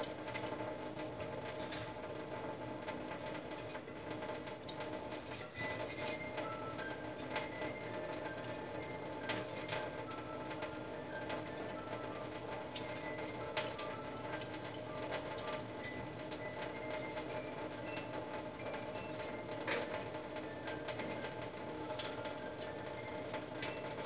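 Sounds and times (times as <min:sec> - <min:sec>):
faint music: 0:00.0 - 0:24.0
tap water running in a sink: 0:00.0 - 0:24.0
drip and splash clicks: 0:03.1 - 0:05.5, 0:19.7 - 0:22.6.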